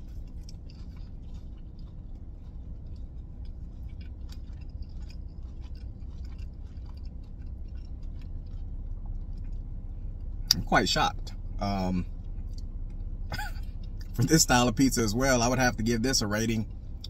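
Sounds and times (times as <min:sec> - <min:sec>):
person chewing: 0:00.0 - 0:10.6
low rumble: 0:00.0 - 0:17.0.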